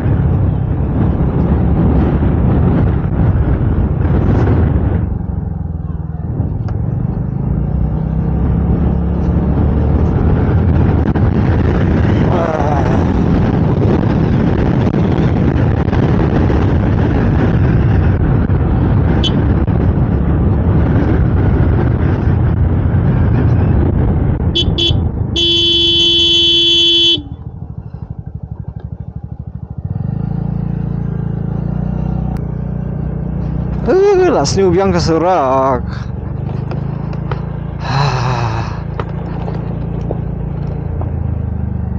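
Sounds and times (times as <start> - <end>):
vehicle engine and road rumble: 0.0 - 41.9
vehicle horn toots and blast: 19.2 - 19.4, 24.5 - 27.4.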